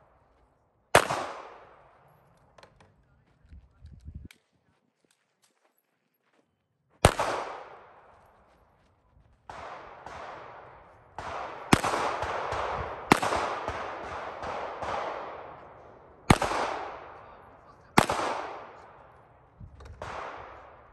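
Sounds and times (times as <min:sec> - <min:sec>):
pistol shots with echo: 0:00.9 - 0:02.1, 0:07.0 - 0:08.4, 0:09.4 - 0:20.9.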